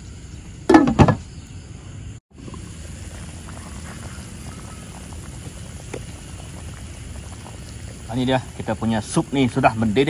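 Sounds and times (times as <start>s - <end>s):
broth boiling with small pops: 2.3s - 10.0s.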